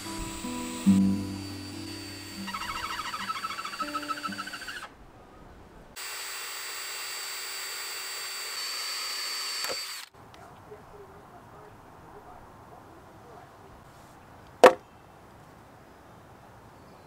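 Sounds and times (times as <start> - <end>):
cordless drill boring into wood: 0.0 - 4.9, 6.0 - 10.1.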